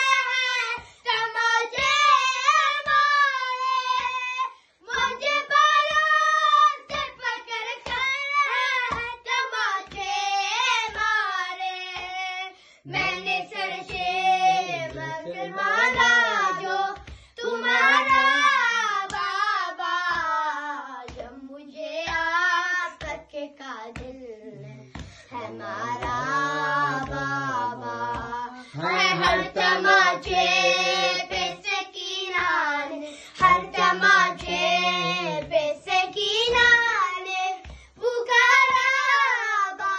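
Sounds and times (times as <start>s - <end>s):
boys chanting: 0.0s - 8.0s, 12.8s - 21.2s, 24.4s - 39.9s
hands slapping chests: 0.0s - 39.9s.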